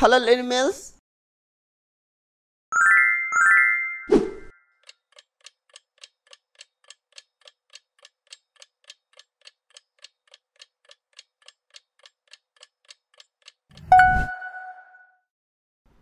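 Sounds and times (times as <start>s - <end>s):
timer ticking like a clock: 4.8s - 14.1s.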